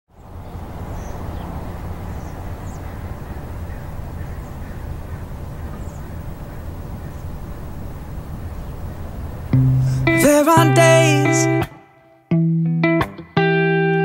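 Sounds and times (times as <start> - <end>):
faint bird chirps: 0.1 - 10.0
low outdoor rumble: 0.1 - 11.6.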